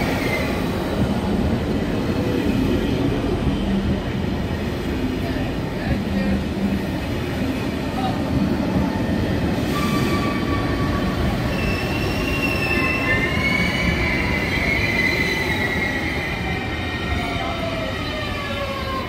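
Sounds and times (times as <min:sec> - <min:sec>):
train wheels rumbling on track: 0:00.0 - 0:19.0
high wheel squeal: 0:09.6 - 0:16.3.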